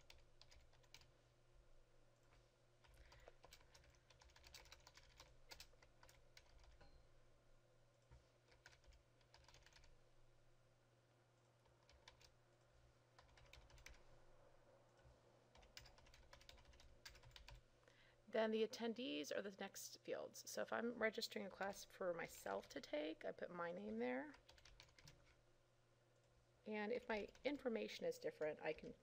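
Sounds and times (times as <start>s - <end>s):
faint keyboard typing: 0.0s - 1.2s, 2.2s - 7.0s, 7.9s - 10.0s, 11.3s - 14.2s, 14.8s - 17.7s, 24.2s - 25.4s, 26.1s - 29.0s.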